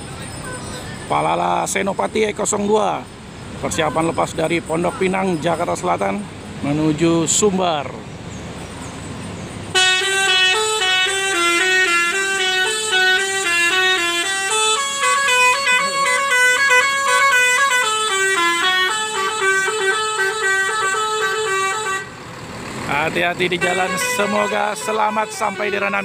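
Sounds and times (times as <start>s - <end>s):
multi-tone bus horn tune: 0.4s - 1.0s, 9.7s - 22.3s, 23.4s - 26.0s.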